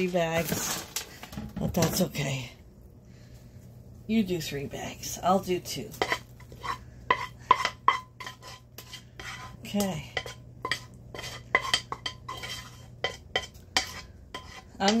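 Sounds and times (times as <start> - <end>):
metal spoon scraping saucepan: 5.9 - 15.0.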